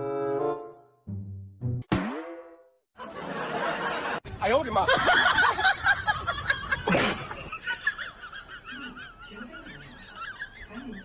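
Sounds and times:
high-pitched laughter: 5.0s - 11.0s.

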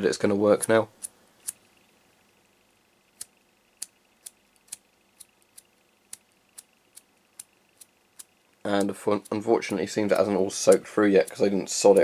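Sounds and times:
lighter flint wheel clicks: 3.1s - 12.0s.

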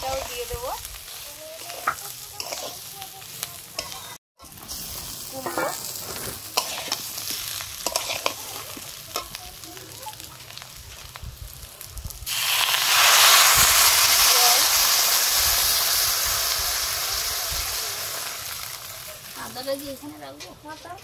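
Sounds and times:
water hissing in hot pan: 0.0s - 20.1s
vegetables sizzling in a pan: 0.0s - 21.0s
spatula scraping metal pan: 1.3s - 3.1s, 5.3s - 9.4s.

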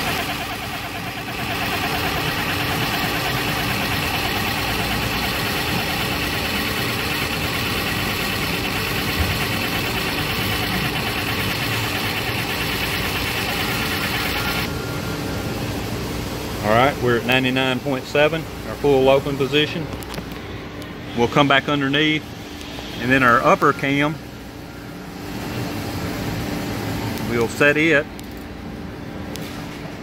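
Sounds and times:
actuator motor and gears running: 0.0s - 14.8s.

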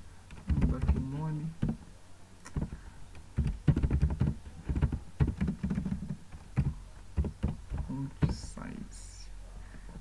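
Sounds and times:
computer keyboard typing: 0.3s - 1.8s, 2.5s - 8.4s.

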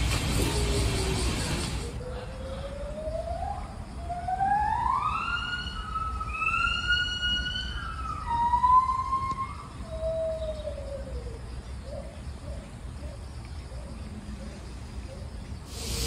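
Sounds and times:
siren wailing: 2.0s - 10.1s.

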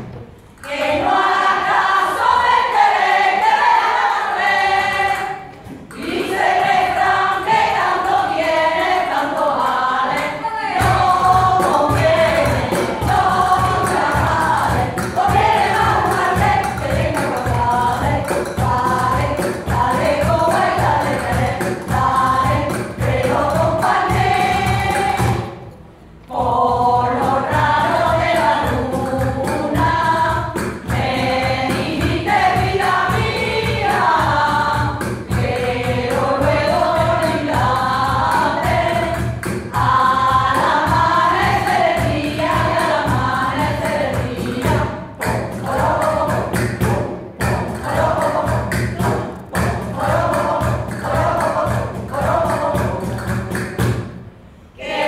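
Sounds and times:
women's choir singing: 0.0s - 54.0s, 54.6s - 55.0s
cajon drum: 0.0s - 54.6s
hand-clapping: 39.2s - 40.0s, 43.8s - 54.1s.

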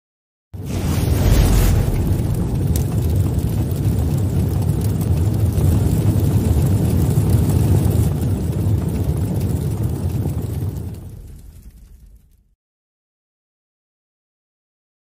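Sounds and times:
low rumble sound effect: 0.6s - 6.5s.

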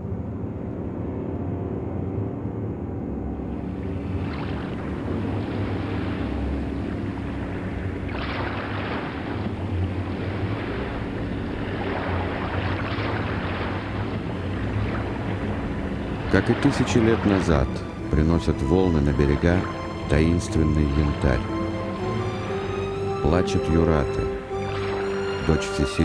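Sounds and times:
steady low hum: 0.0s - 25.6s
surf breaking over rocks: 3.6s - 21.6s.

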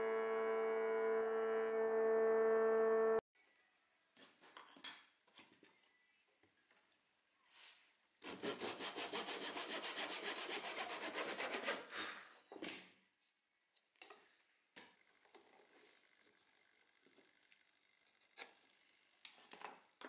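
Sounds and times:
pull saw cutting wood: 8.2s - 12.1s.

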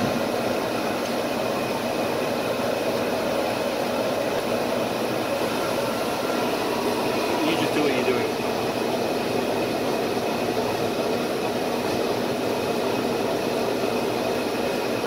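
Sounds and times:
shop machinery whirring: 0.0s - 15.0s.

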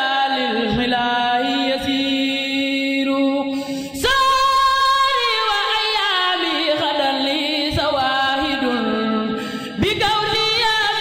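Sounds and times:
woman chanting: 0.0s - 11.0s.

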